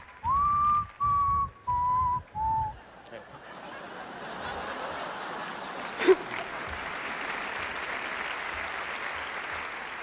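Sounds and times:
audience applauding: 0.0s - 3.2s, 4.4s - 10.0s.

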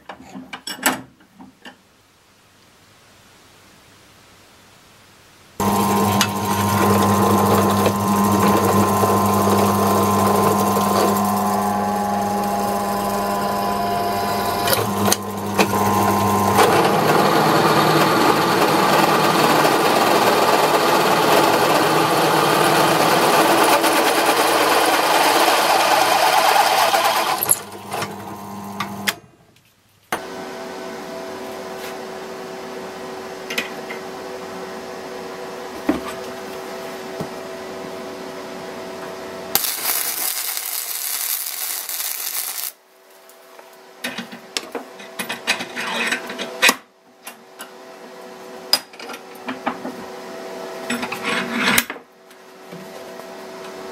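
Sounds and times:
drill bit cutting steel: 5.6s - 29.1s
drill press motor running: 5.6s - 29.2s.

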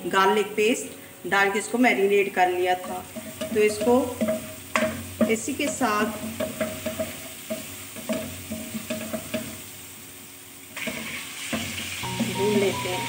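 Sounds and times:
paste frying in hot oil: 1.6s - 13.0s
chicken sizzling in oil: 2.2s - 13.0s
spatula tapping and scraping pan: 2.8s - 9.6s, 10.8s - 12.7s.

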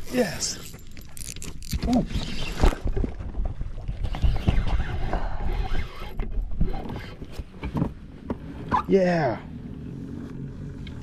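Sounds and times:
fishing reel clicking: 0.0s - 2.4s.

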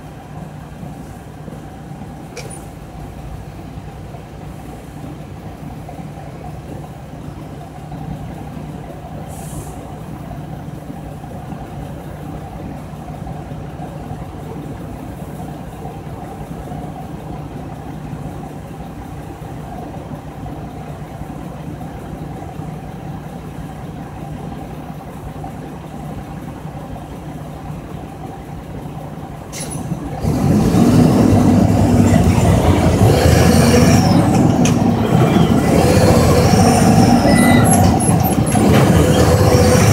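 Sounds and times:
truck diesel engine: 0.0s - 39.9s
brief air hiss: 9.3s - 9.9s, 29.5s - 30.0s.

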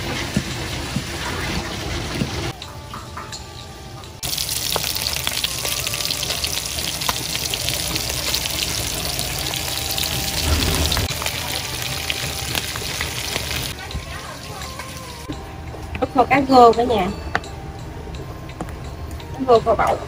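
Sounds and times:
fish frying in hot oil: 4.2s - 15.3s.

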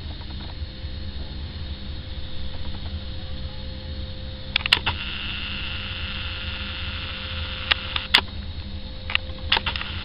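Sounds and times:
road sweeper rumble and whine: 0.0s - 10.0s
sharp clicks: 4.5s - 8.4s, 9.1s - 10.0s.

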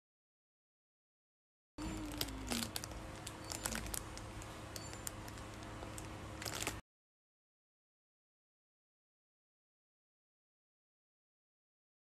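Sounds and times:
low steady hum: 1.8s - 6.8s
plastic packaging crinkling: 1.8s - 6.8s.

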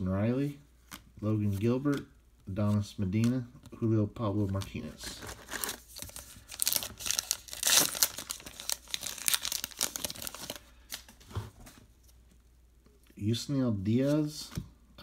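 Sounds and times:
plastic wrapper crinkling and tearing: 5.0s - 11.2s.

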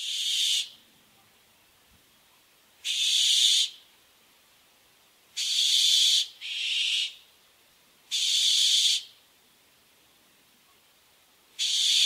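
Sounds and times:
owl harsh screeches: 0.0s - 0.8s, 2.8s - 3.8s, 5.4s - 7.2s, 8.1s - 9.1s, 11.6s - 12.0s.

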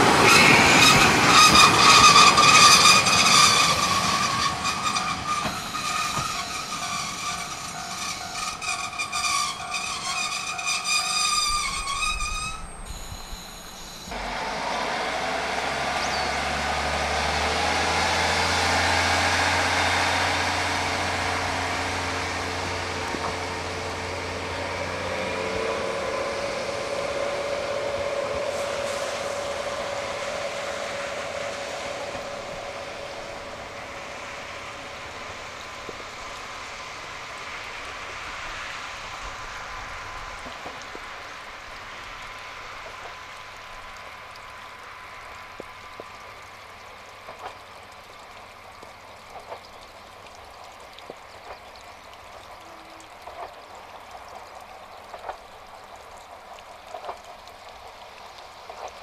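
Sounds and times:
diesel railcar engine drone: 0.0s - 59.0s
rail noise: 0.0s - 59.0s
steady whine: 11.7s - 14.5s.

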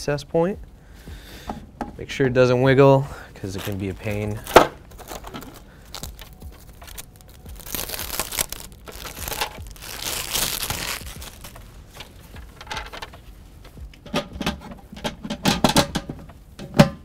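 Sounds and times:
plastic bag crinkling: 3.4s - 13.2s.

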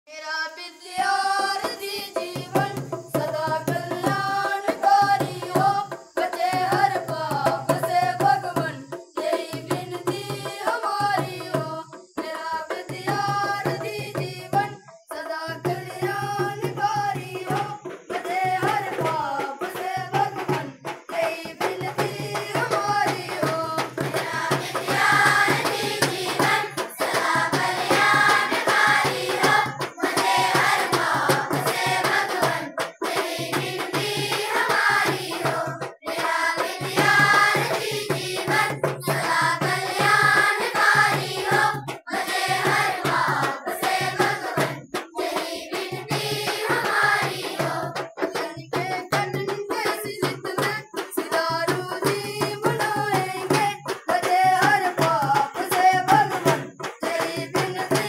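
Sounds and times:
hand drum beat: 1.4s - 14.8s, 15.5s - 58.0s
children singing together: 15.8s - 58.0s.

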